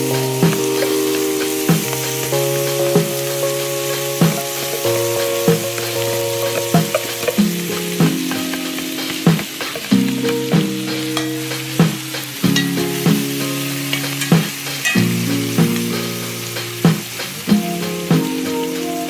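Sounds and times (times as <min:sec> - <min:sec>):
background music of held chords: 0:00.0 - 0:19.0
sauce sizzling in a skillet: 0:00.0 - 0:19.0
metal spoon clinking on pan: 0:11.2 - 0:11.4, 0:13.9 - 0:15.2.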